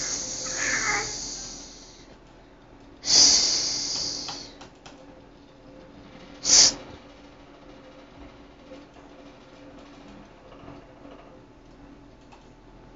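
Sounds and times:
baby shrieking: 0.0s - 1.8s.

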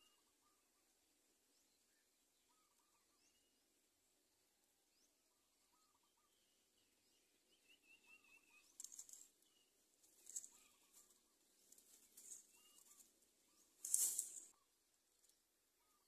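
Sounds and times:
faint bird calls: 0.0s - 3.6s, 5.0s - 16.0s
rustling of dry leaves: 8.6s - 9.4s, 10.0s - 15.4s
wing flaps: 13.8s - 14.5s.

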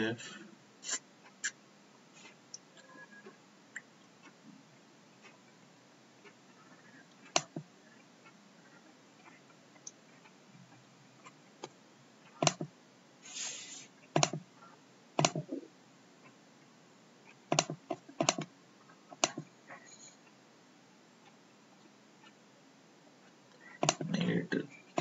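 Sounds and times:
computer mouse clicks: 7.1s - 7.7s, 11.2s - 12.7s, 14.2s - 14.4s, 15.2s - 15.6s, 17.5s - 18.5s, 19.1s - 20.1s, 23.5s - 24.2s
brief hiss: 13.2s - 13.9s.

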